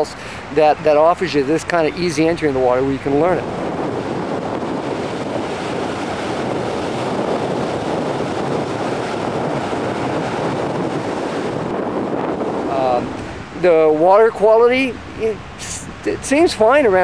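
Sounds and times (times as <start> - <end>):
wind on microphone: 0.0 - 17.0
small waves breaking: 2.8 - 13.7.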